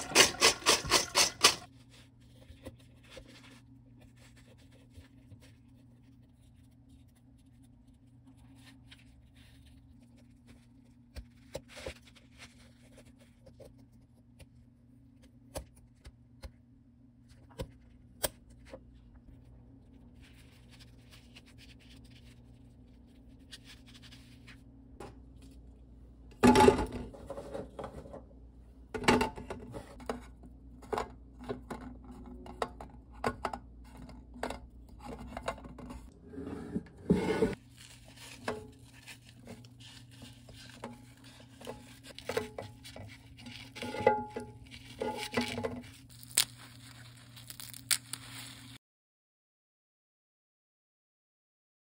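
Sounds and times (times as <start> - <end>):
chestnuts knocking and rustling: 45.2 - 48.4.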